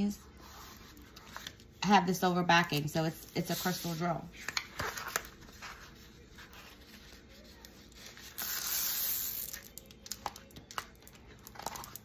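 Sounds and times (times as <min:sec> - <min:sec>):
soft rubbing on plastic film: 0:00.2 - 0:01.8, 0:03.3 - 0:09.1.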